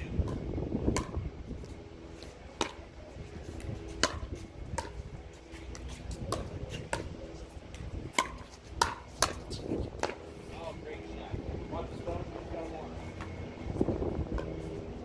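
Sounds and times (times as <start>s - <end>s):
pickleball popping off paddles: 4.0s - 5.0s.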